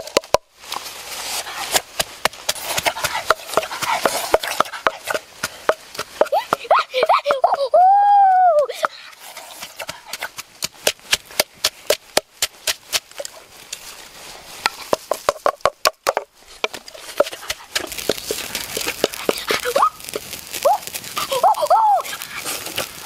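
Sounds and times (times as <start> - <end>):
boy yelping: 6.2 - 8.9, 19.2 - 22.3
wooden pestle knocking in mortar: 14.9 - 19.4.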